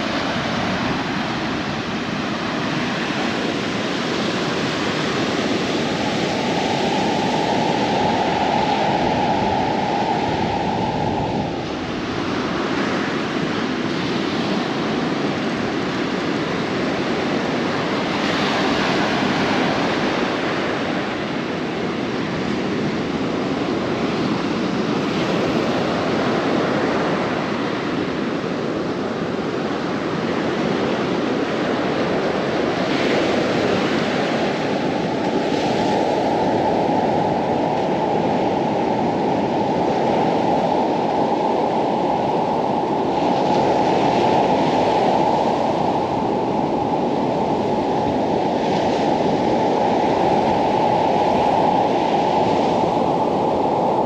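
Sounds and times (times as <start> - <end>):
ocean surf rushing: 0.0 - 54.0
wind noise: 0.0 - 54.0
steady hum: 5.7 - 12.6.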